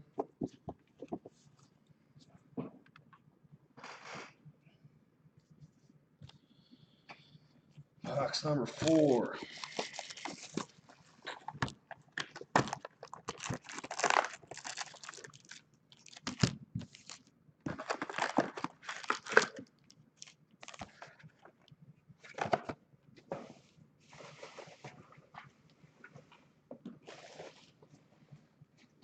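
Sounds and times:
plastic wrapping tearing and crinkling: 9.6s - 21.4s.

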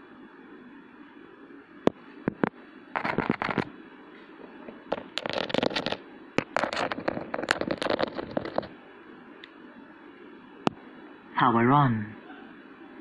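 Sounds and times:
crackly rustling and clicking: 2.3s - 3.7s, 4.5s - 8.8s.

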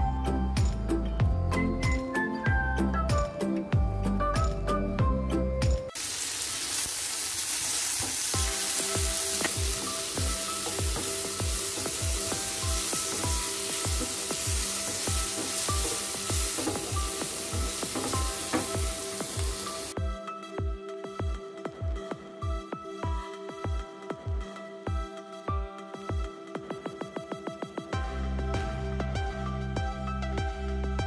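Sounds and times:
background music with steady beat: 0.0s - 6.0s, 8.0s - 31.0s
onions sizzling in oil: 5.9s - 20.0s
wooden spatula stirring: 7.9s - 20.0s.

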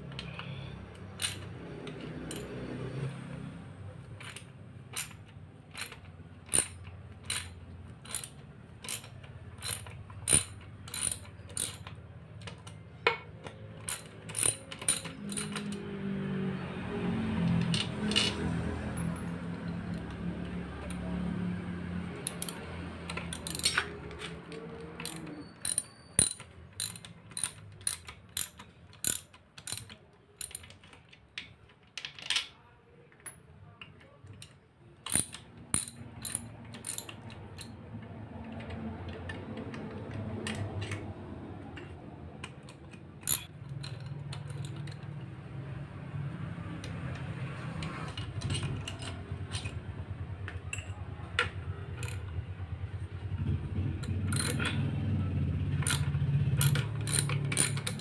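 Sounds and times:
ratchet wrench clicking: 0.1s - 2.6s, 4.1s - 12.8s, 13.4s - 15.8s, 17.6s - 19.3s, 22.2s - 31.0s, 34.4s - 37.8s, 41.8s - 45.3s, 46.8s - 49.8s, 51.9s - 52.4s, 54.0s - 54.8s, 55.8s - 58.0s.

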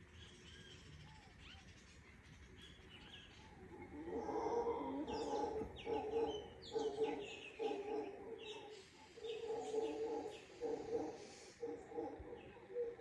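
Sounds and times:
birds chirping: 0.1s - 13.0s
howler monkeys roaring: 3.6s - 13.0s.

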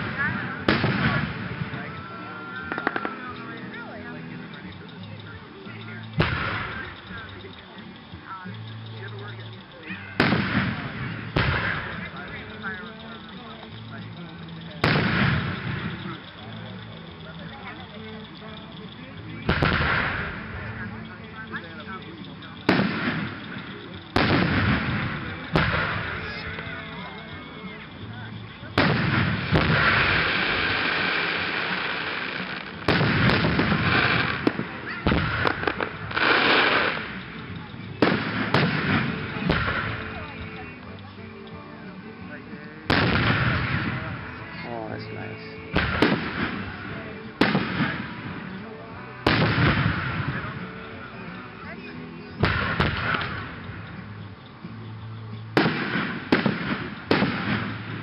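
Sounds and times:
firework shells bursting: 0.0s - 51.7s, 52.4s - 58.0s
quick firework pops: 6.1s - 7.3s, 10.2s - 12.8s, 14.8s - 16.2s, 19.5s - 20.4s, 22.6s - 26.7s, 28.7s - 37.4s, 38.0s - 40.7s, 42.9s - 44.2s, 45.7s - 48.6s, 49.2s - 50.6s, 52.4s - 54.0s, 55.6s - 58.0s
hissing rush: 28.4s - 40.4s.

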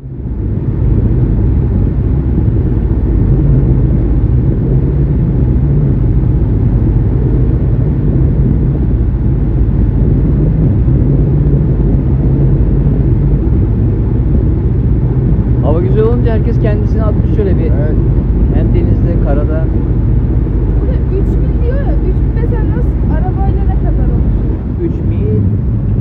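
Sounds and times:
boat engine rumbling: 0.0s - 26.0s
wind rushing: 0.0s - 26.0s.

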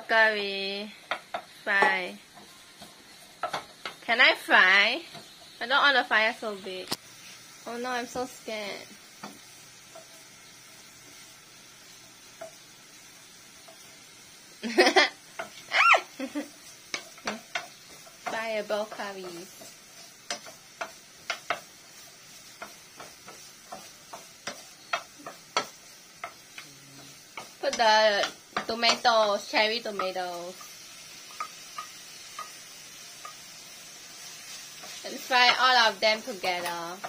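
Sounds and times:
faint sizzle in frying pan: 0.0s - 37.0s
spatula knocking and scraping pan: 1.0s - 4.2s, 9.1s - 10.5s, 15.3s - 15.7s, 16.6s - 37.0s.

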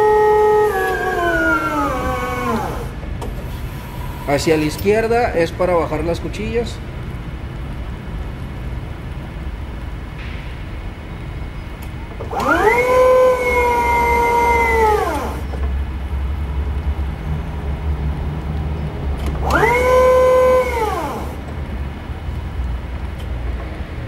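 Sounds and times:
hydraulic pump motor whining: 0.0s - 4.9s, 11.8s - 15.8s, 19.2s - 22.0s.

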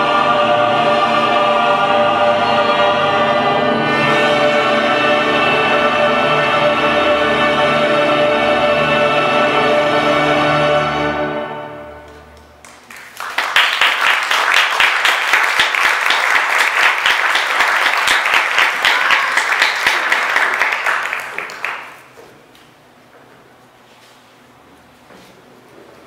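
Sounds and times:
music: 0.0s - 12.6s
audience applauding: 12.1s - 22.2s.

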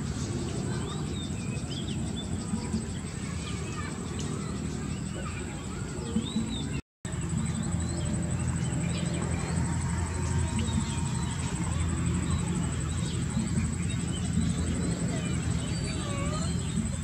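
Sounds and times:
high-pitched whine: 6.7s - 17.0s.

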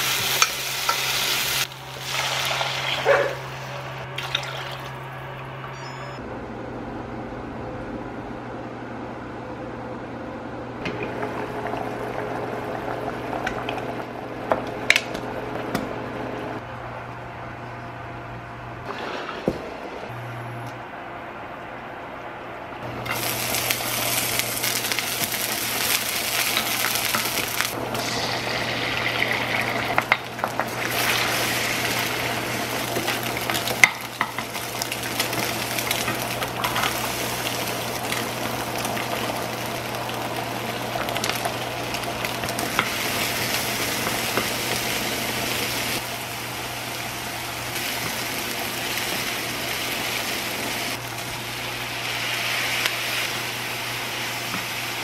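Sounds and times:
food sizzling in oil: 0.0s - 4.8s, 23.0s - 55.0s.

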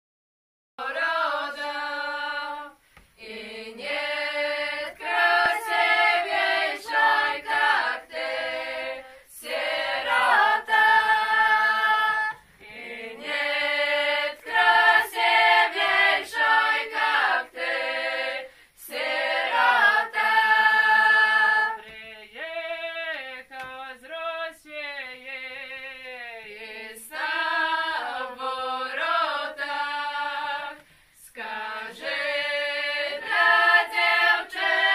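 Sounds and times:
women singing unaccompanied: 0.8s - 34.9s.

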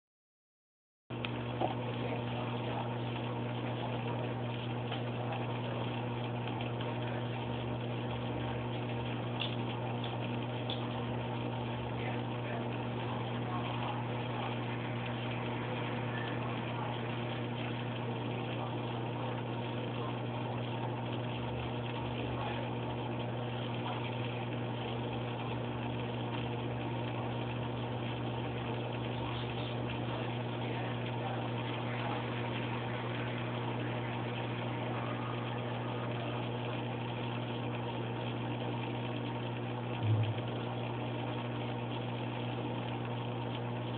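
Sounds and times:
aquarium pump humming: 1.1s - 43.9s.

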